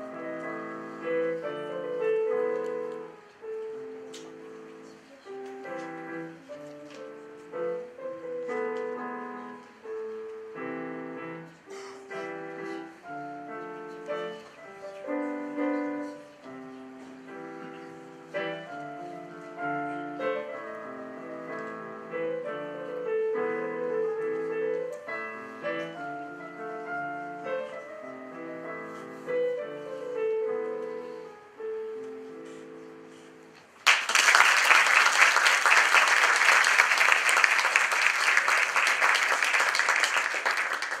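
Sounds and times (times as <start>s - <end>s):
digital piano piece: 0.0s - 41.0s
audience applause: 33.8s - 41.0s.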